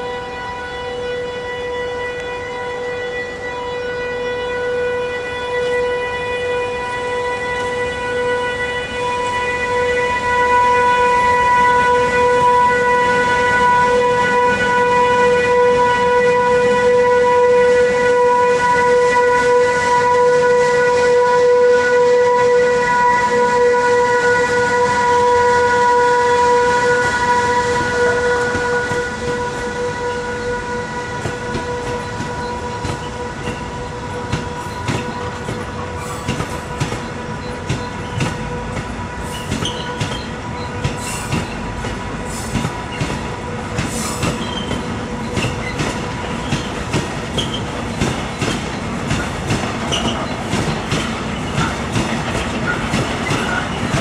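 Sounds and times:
electric locomotive whine: 0.0s - 54.0s
train rolling noise: 0.0s - 54.0s
wheels clacking over rail joints: 31.2s - 54.0s.

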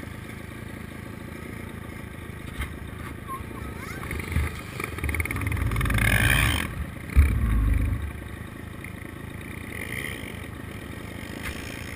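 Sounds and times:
dirt bike engine running: 0.0s - 11.9s
sharp knock: 7.1s - 8.3s.

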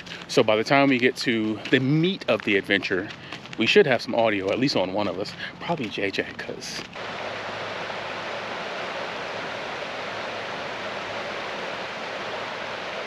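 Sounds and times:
river rushing over rocks: 7.0s - 13.0s.

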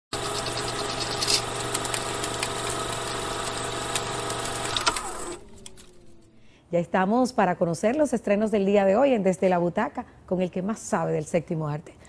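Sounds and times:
film projector whirring: 0.1s - 6.2s
low hum: 5.0s - 6.7s.

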